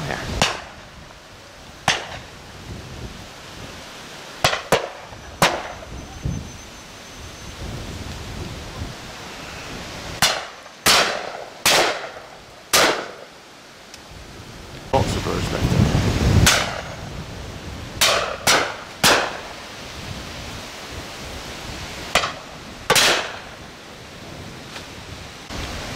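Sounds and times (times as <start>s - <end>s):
shotgun shots: 10.2s - 13.2s, 18.0s - 19.4s, 22.2s - 23.5s.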